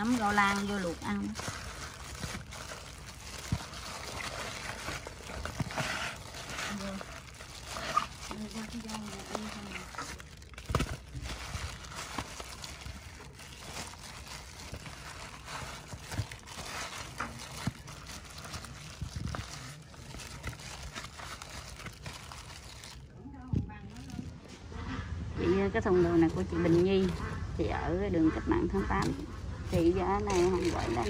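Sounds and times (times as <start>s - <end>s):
fish squishing wetly: 0.0s - 23.1s
plastic glove crinkling: 0.0s - 24.6s, 29.0s - 31.0s.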